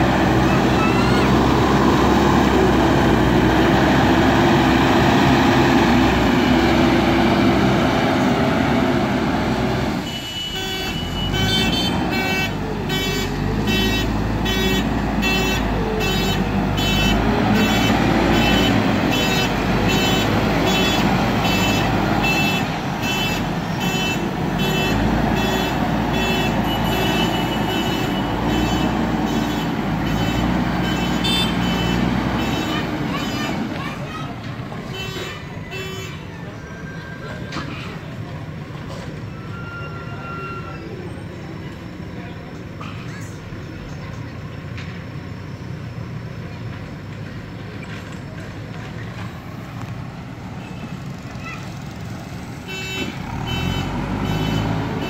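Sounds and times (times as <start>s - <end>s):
diesel engine running: 0.0s - 55.0s
reversing alarm beeping: 39.3s - 41.0s.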